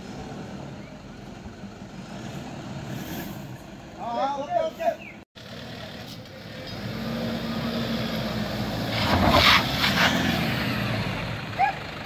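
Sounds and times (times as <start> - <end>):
diesel engine revving: 0.0 - 4.0, 5.4 - 12.0
wheels scrabbling in dirt: 8.9 - 10.3.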